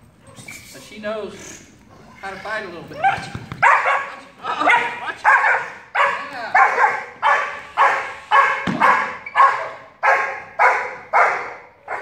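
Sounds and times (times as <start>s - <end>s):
dog barking: 3.0s - 12.0s.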